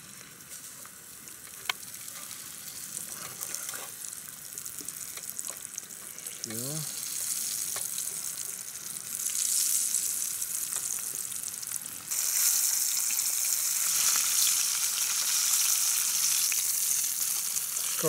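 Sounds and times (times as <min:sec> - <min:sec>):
fish sizzling in oil: 0:00.0 - 0:18.0
person talking: 0:06.4 - 0:06.9.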